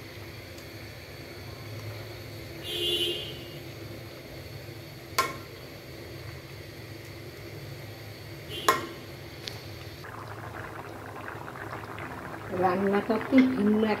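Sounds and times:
curry bubbling in pot: 5.0 - 14.0.

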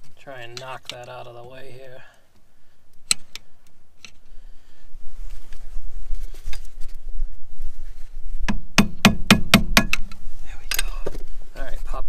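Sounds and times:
tapping on metal cable end: 8.5 - 10.9.

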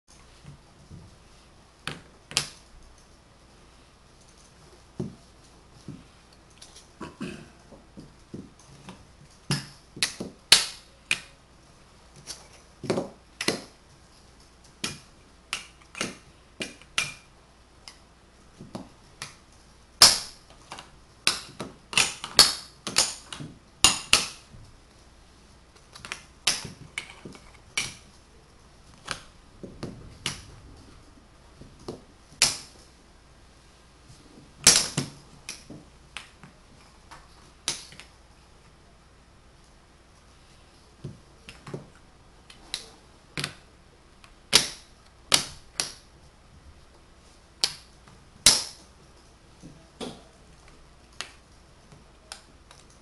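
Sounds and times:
wooden blocks clicking together: 8.9 - 11.4, 18.7 - 24.5.

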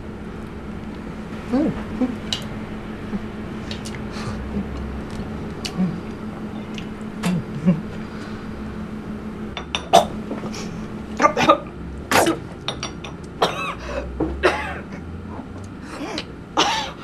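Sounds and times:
low hum: 0.0 - 17.0
woman coughing and spluttering: 11.3 - 12.4, 13.4 - 13.8, 14.4 - 15.0, 16.0 - 17.0
crockery clinking: 12.7 - 13.3.

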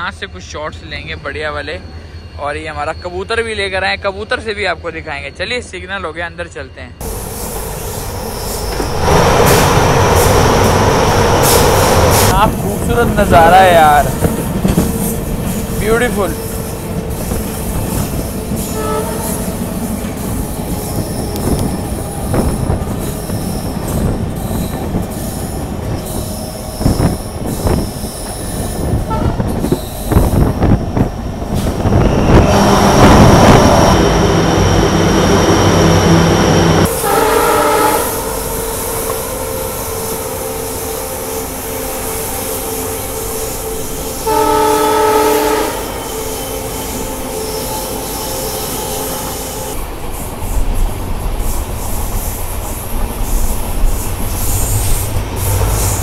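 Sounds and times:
train wheel and rail noise: 0.0 - 56.0
wind: 0.0 - 56.0
diesel locomotive horn: 18.0 - 24.2, 29.0 - 30.2, 31.9 - 49.8.

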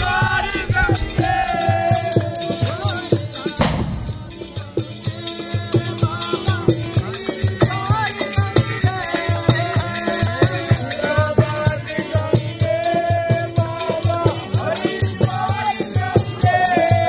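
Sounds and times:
man singing: 0.0 - 17.0
low pulsing beat: 3.6 - 4.9.

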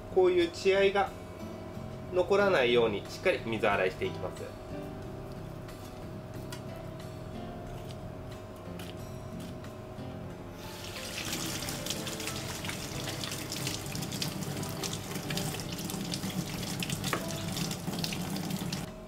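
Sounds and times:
tap water running into sink: 10.7 - 18.9.

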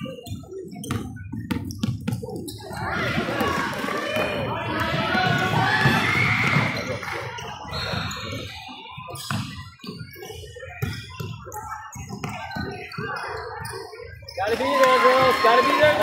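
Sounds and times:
basketball bouncing: 0.8 - 7.4.

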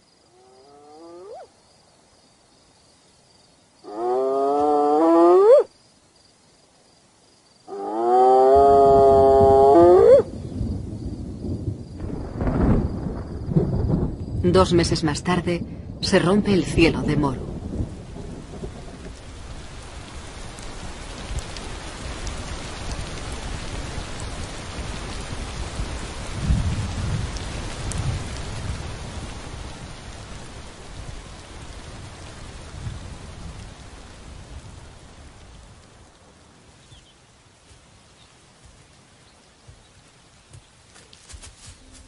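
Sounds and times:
heavy rain: 6.6 - 42.0
thunder rumble: 8.5 - 36.0.

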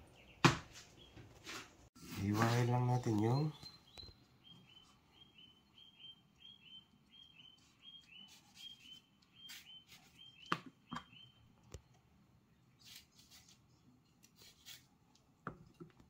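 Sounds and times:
faint bird chirping: 2.7 - 13.6.

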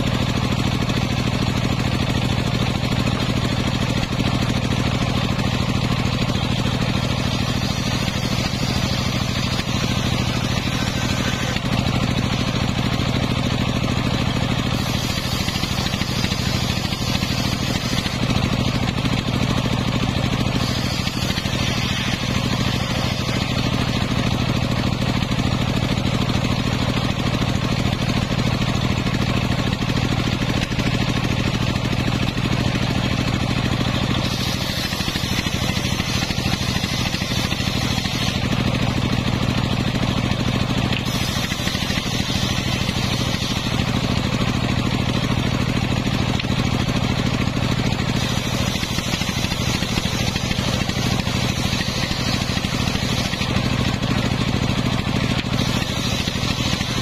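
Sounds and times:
saw bench engine running: 0.0 - 57.0
circular saw ripping wood: 6.6 - 12.4, 13.9 - 19.4, 20.2 - 24.4, 34.0 - 44.9, 47.7 - 57.0.

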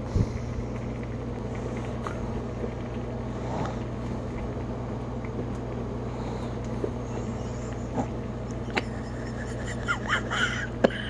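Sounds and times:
steady low hum: 0.0 - 11.0
faint clicks and knocks: 0.7 - 3.1.

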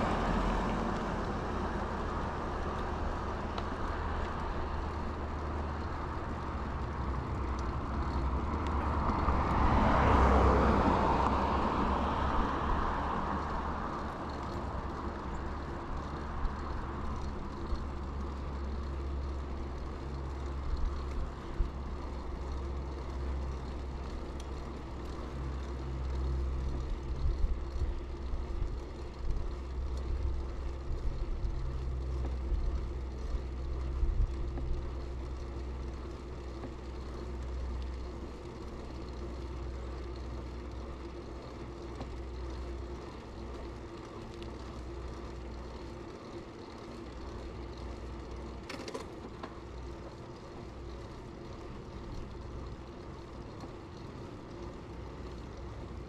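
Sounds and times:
car passing by: 0.0 - 4.4, 8.2 - 14.8
wind and tyre rumble: 0.0 - 56.0
bike knocks and rattles: 48.5 - 49.8.

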